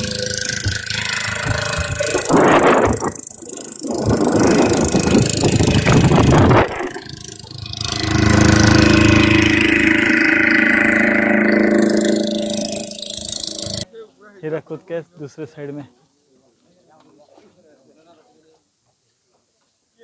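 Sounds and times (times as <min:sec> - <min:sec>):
ferry engine drone: 0:00.0 - 0:13.9
wind noise on microphone: 0:01.4 - 0:07.4.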